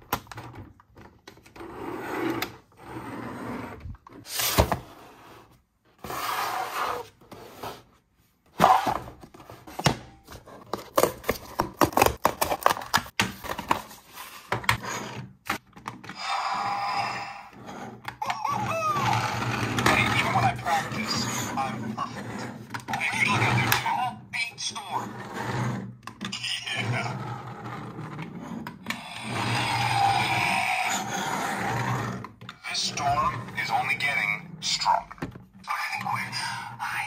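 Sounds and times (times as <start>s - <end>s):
hands handling plastic and cardboard: 8.6s - 14.8s.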